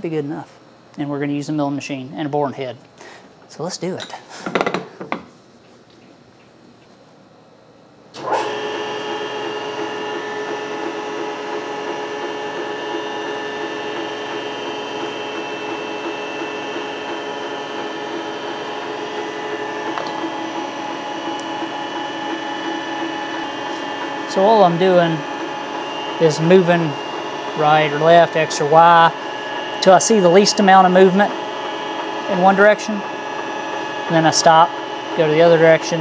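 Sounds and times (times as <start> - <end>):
milling machine motor whine: 8.2 - 36.0.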